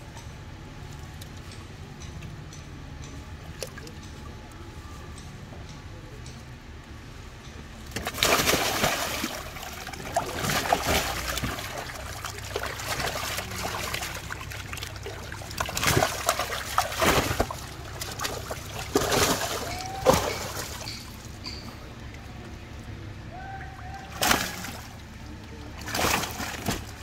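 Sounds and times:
water sloshing and dripping: 7.8s - 22.6s, 23.6s - 27.0s
fish splashing in water: 7.9s - 21.6s, 23.7s - 27.0s.

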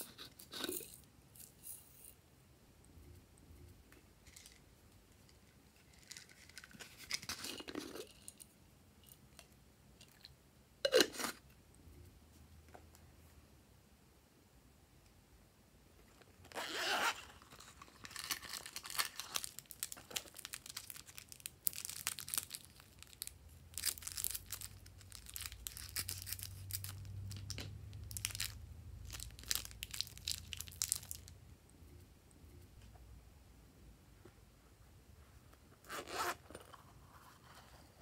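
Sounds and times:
plastic wrapping crinkling: 5.8s - 8.1s, 16.5s - 31.4s.

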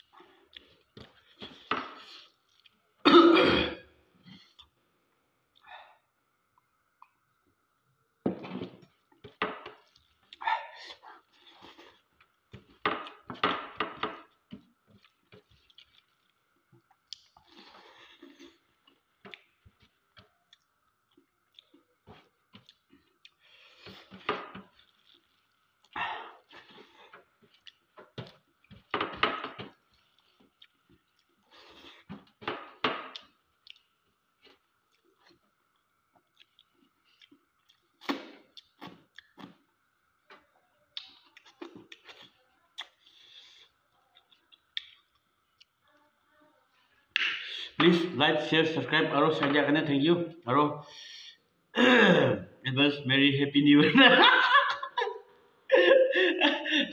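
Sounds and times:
person chewing: 0.0s - 2.8s, 9.0s - 13.3s, 14.2s - 28.9s, 29.6s - 40.2s, 41.0s - 45.8s
man clearing throat: 3.0s - 3.9s.

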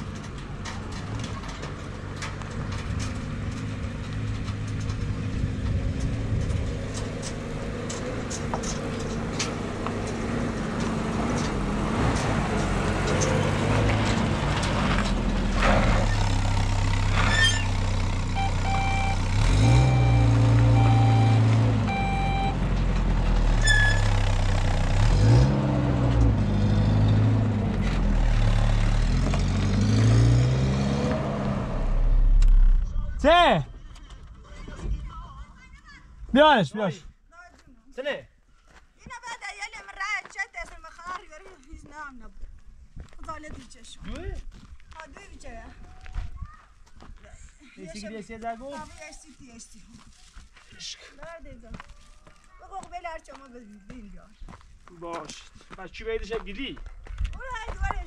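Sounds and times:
vehicle engine running: 0.0s - 33.2s
short electronic beeps: 18.4s - 22.6s.

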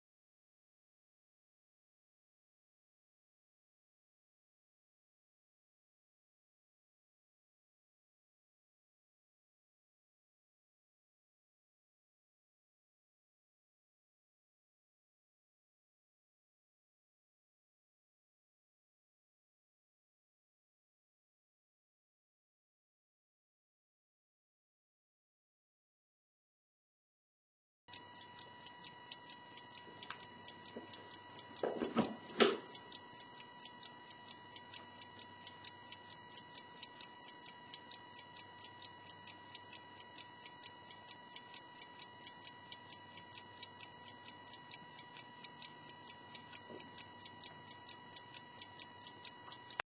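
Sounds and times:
clock ticking: 27.9s - 49.9s.

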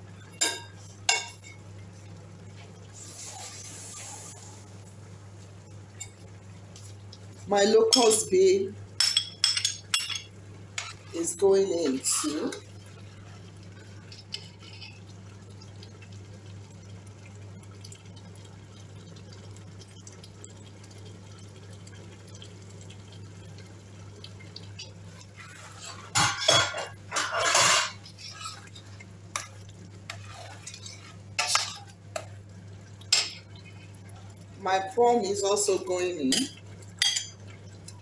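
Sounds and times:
metal spoon scraping pot: 25.4s - 28.7s.

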